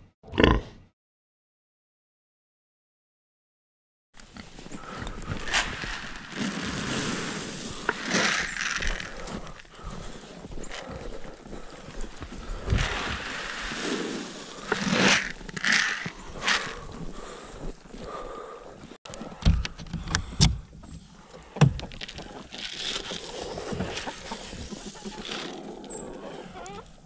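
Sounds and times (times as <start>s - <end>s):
rustle of movement: 4.2s - 17.8s.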